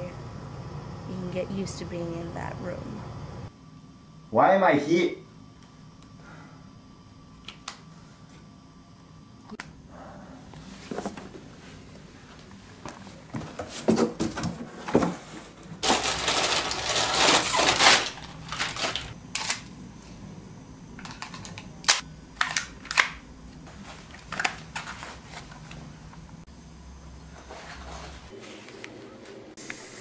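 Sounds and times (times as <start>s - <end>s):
rustling scrape: 14.7s - 19.2s, 27.4s - 28.8s.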